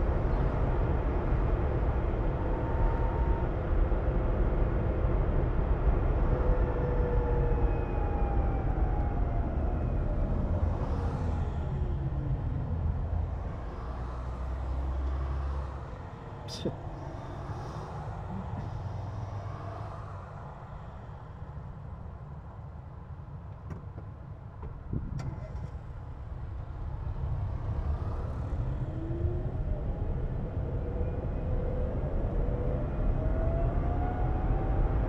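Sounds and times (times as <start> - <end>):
road rumble: 0.0 - 35.0.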